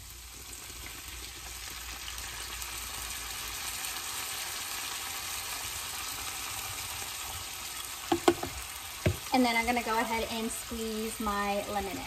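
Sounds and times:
onion and garlic sizzling: 0.0s - 12.0s.

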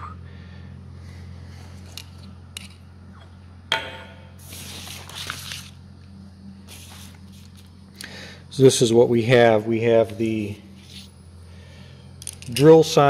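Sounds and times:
steady low hum: 0.0s - 13.0s
paper sliding on stone: 4.4s - 5.8s, 6.7s - 7.7s.

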